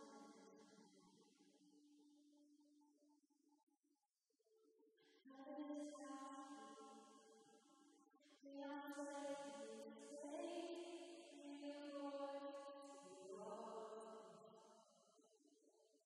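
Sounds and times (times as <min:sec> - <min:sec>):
soft worship singing: 0:00.0 - 0:02.0, 0:05.2 - 0:15.0.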